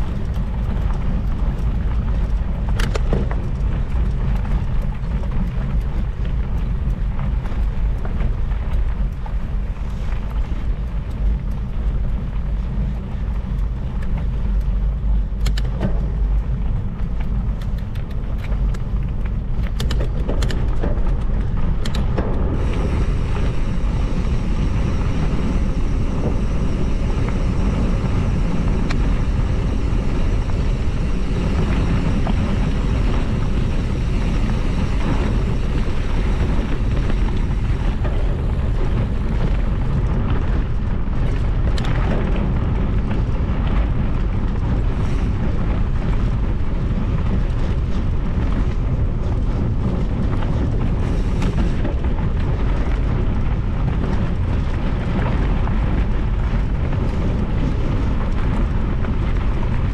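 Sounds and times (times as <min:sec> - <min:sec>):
vehicle travel rumble: 0:00.0 - 0:59.9
bright steady hiss: 0:22.0 - 0:40.3.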